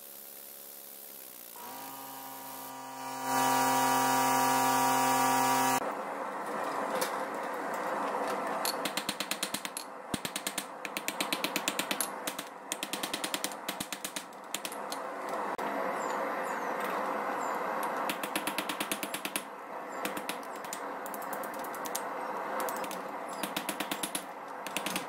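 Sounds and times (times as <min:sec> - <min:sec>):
humming tone rising in pitch: 0:01.6 - 0:05.8.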